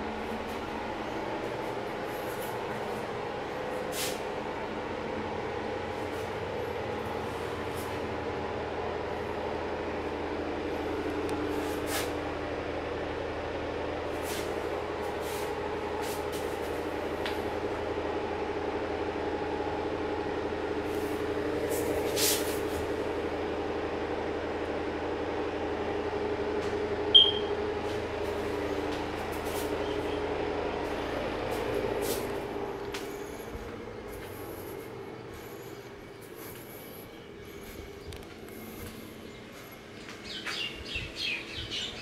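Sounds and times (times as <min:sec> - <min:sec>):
steady mechanical hum: 0:00.0 - 0:42.0
short high chirp: 0:27.2 - 0:27.5.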